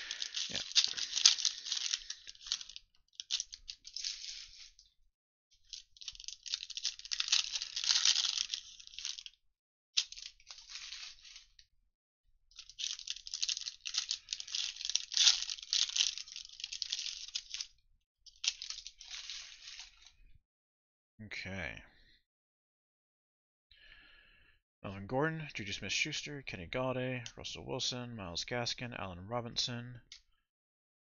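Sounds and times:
foil wrappers tearing and crinkling: 0.0 - 4.7, 6.0 - 9.3, 10.0 - 11.5, 12.6 - 17.7.

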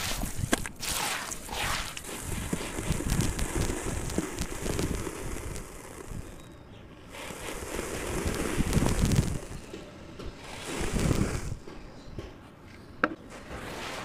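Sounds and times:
powder pouring onto water: 0.0 - 6.4, 7.1 - 9.6, 10.4 - 11.6
hands squishing wet cement mix: 0.0 - 6.5, 7.1 - 12.1.

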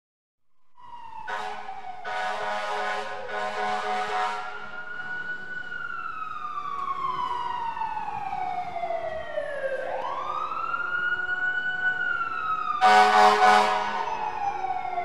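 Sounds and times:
fire truck siren wailing: 0.8 - 15.0
horn blast: 1.3 - 4.6, 12.8 - 14.1.

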